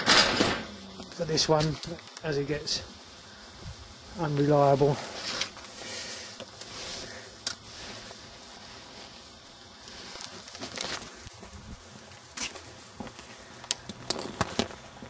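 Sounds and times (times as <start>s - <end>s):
footsteps on paving: 10.6s - 13.3s.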